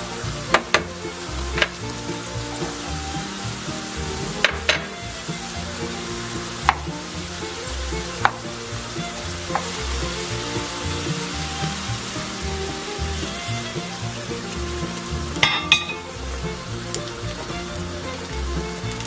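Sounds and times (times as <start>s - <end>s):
potatoes sizzling in oil: 0.0s - 19.0s
spoon knocking against pan: 4.3s - 5.0s, 8.2s - 8.5s, 9.5s - 9.8s, 15.4s - 16.1s.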